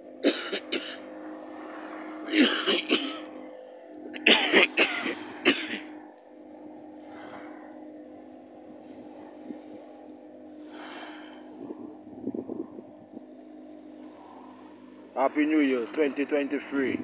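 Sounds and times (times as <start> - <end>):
steady low hum: 0.0 - 17.0
person coughing: 0.2 - 1.0, 2.3 - 3.3, 4.2 - 5.9.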